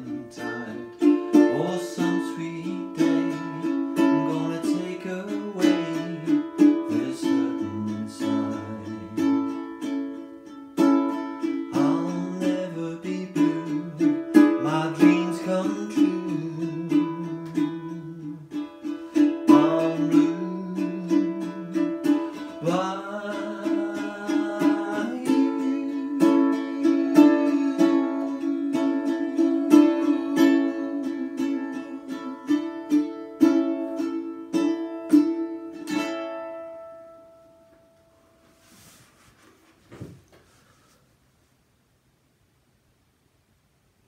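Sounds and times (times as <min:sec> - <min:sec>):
ukulele strumming: 0:00.0 - 0:39.0
faint knock: 0:39.8 - 0:40.6.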